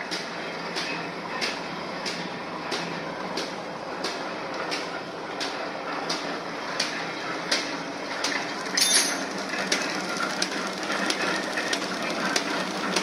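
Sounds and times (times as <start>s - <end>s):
sharp mechanical knocks: 0.0s - 9.9s
machine clattering: 0.0s - 13.0s
machine rattle: 0.0s - 13.0s.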